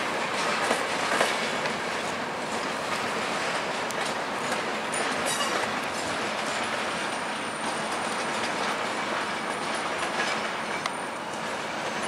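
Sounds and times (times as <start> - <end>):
train wheel and rail rumble: 0.0 - 12.0
faint high wheel squeal: 4.4 - 5.7, 6.9 - 8.2, 8.9 - 12.0.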